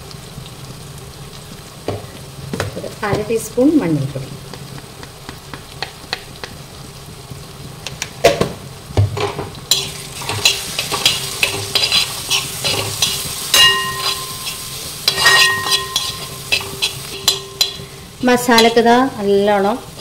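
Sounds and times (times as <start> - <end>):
light sizzle: 0.0 - 20.0
spoon scraping metal pan: 9.7 - 18.8
pan ringing: 13.4 - 18.8.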